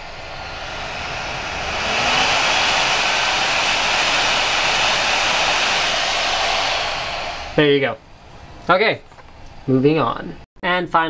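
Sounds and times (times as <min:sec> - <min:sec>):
blower fan rushing whoosh: 0:00.0 - 0:08.8.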